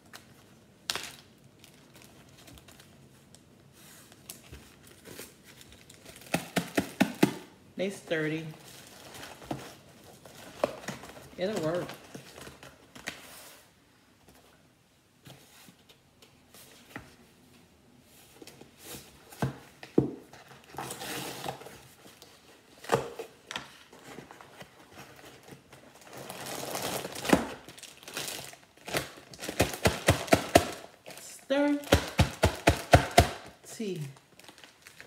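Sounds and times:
plastic bag crinkling: 0.0s - 3.5s, 4.2s - 7.0s, 8.5s - 13.0s, 25.1s - 32.4s, 34.0s - 35.0s.

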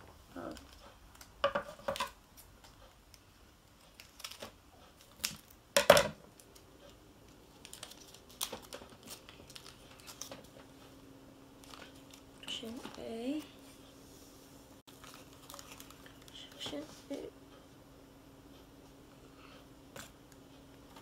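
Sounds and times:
scissors snipping foil packet: 3.8s - 5.6s, 7.4s - 10.5s
foil packet crinkling: 7.4s - 10.6s, 11.6s - 13.0s, 14.9s - 16.6s.

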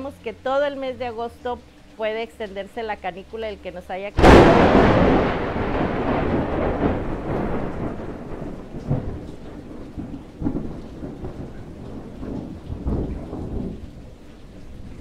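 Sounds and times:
steady rain falling: 0.0s - 15.0s
thunder rumbling: 4.2s - 15.0s.

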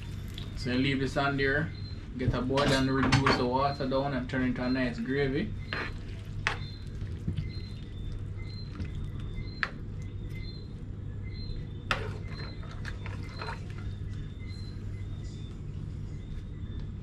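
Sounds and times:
steady low hum: 0.0s - 17.0s
faint high chirps: 4.6s - 17.0s
metal spoon stirring sauce in pan: 5.6s - 10.1s, 11.9s - 14.4s.

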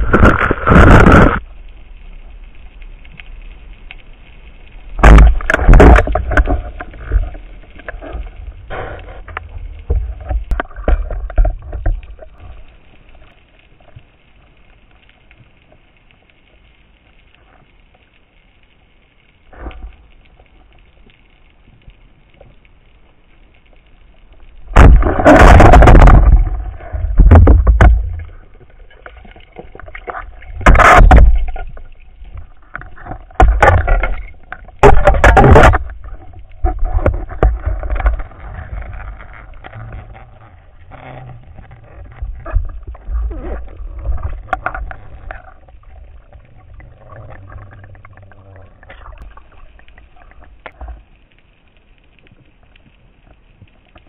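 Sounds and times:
muffled underwater rushes and knocks: 0.0s - 1.4s, 5.0s - 14.2s, 24.6s - 51.3s.

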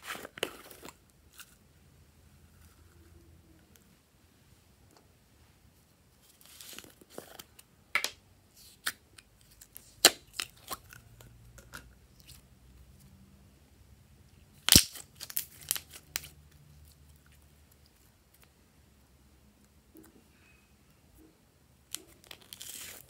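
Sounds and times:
slime popping and crackling: 14.6s - 16.3s.

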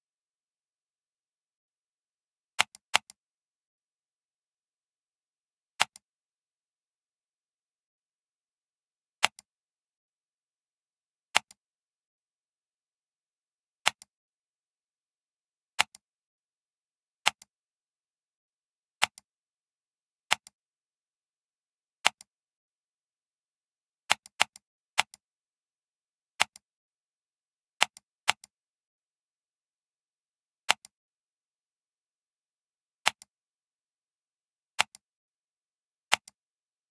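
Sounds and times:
computer mouse button clicking: 2.6s - 3.2s, 5.8s - 6.0s, 9.2s - 9.5s, 11.3s - 11.6s, 13.8s - 14.1s, 17.3s - 17.5s, 26.4s - 26.6s, 30.7s - 30.9s, 33.0s - 33.3s, 34.8s - 35.0s, 36.1s - 36.4s.

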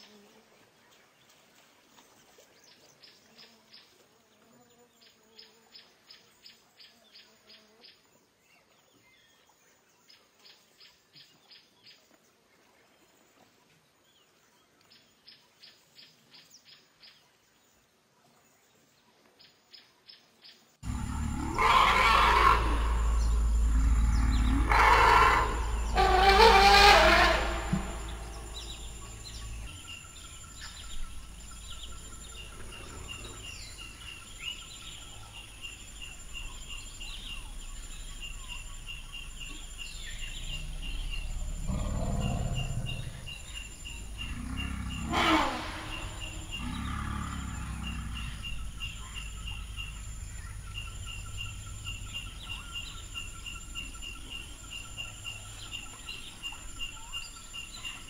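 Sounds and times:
elephants rumbling: 20.8s - 57.4s
insects chirping: 20.8s - 58.0s.

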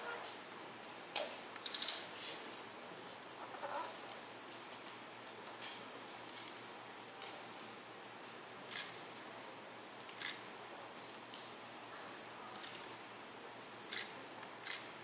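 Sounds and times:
camera focus beep: 6.0s - 6.6s.

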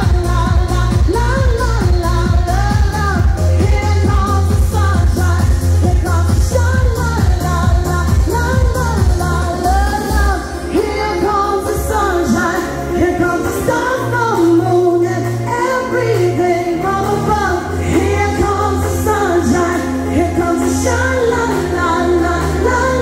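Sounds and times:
pop backing music with beat: 0.0s - 23.0s
woman singing into a microphone: 0.0s - 23.0s.

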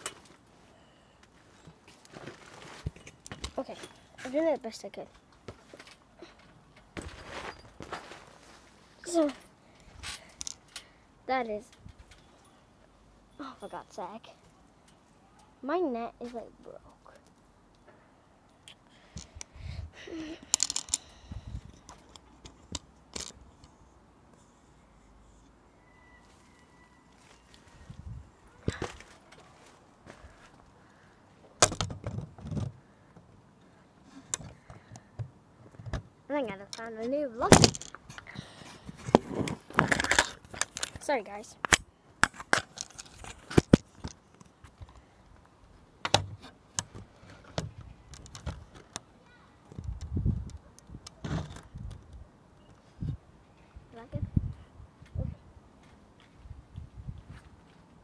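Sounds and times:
phone handling clicks and rustles: 38.9s - 45.1s, 46.0s - 49.1s.

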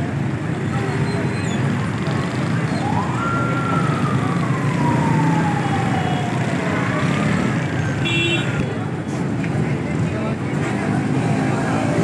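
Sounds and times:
busy street hubbub: 0.0s - 12.0s
siren-like falling wail: 2.6s - 7.8s.

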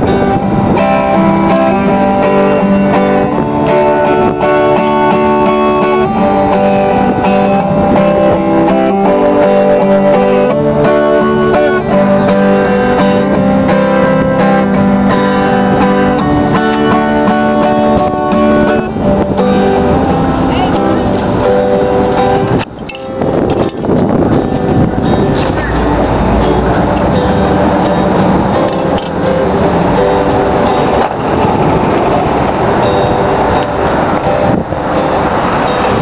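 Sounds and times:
acoustic guitar strumming: 0.0s - 36.0s.

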